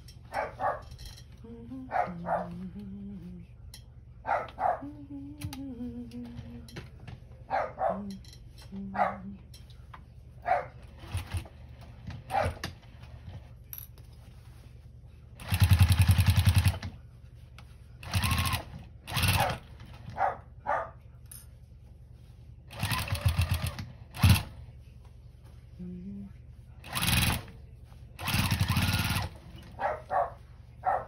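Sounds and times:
sewing machine stitching: 0:11.0 - 0:11.6, 0:15.4 - 0:16.9, 0:18.0 - 0:20.1, 0:22.7 - 0:24.6, 0:26.8 - 0:27.5, 0:28.2 - 0:29.8.

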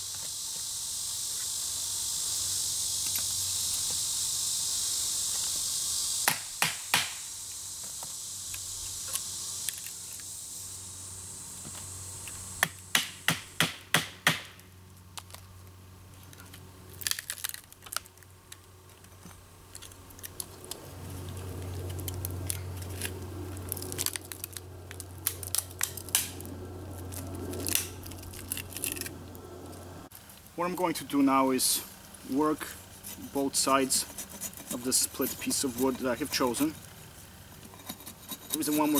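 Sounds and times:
wood cracking and tearing: 0:16.4 - 0:19.1, 0:19.7 - 0:29.2.

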